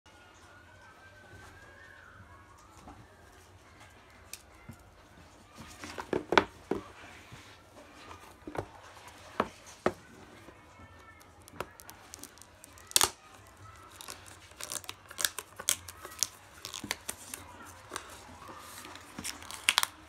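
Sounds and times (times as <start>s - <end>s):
plastic shrink-wrap tearing: 11.0s - 20.0s.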